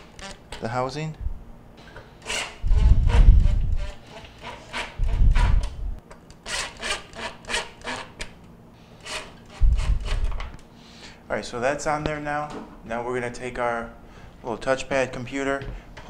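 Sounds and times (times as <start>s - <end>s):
cordless drill driving screws: 2.2s - 2.9s.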